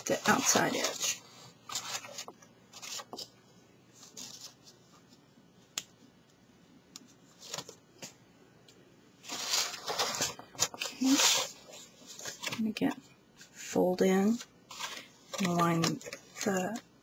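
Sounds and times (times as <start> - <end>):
paper rustling and crinkling: 0.0 - 3.3, 3.9 - 5.2, 7.3 - 8.1, 9.2 - 13.6, 14.2 - 16.9.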